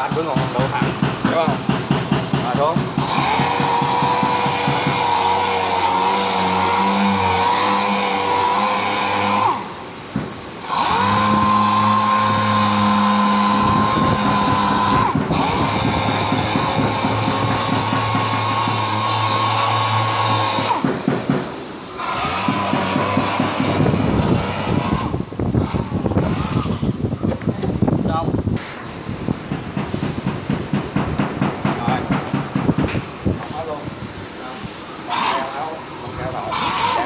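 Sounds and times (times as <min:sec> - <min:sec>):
orbital sander whining: 0:02.6 - 0:28.4, 0:35.1 - 0:37.0.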